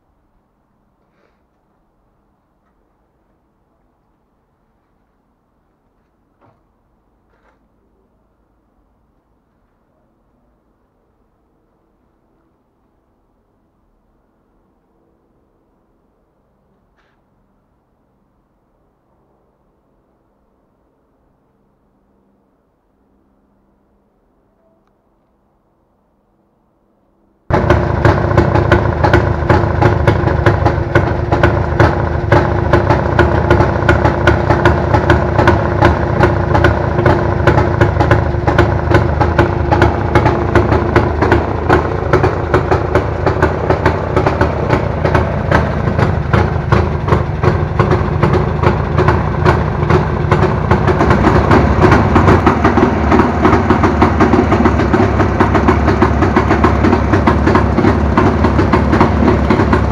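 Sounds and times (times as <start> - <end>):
motorcycle engine idling: 27.5 - 59.9.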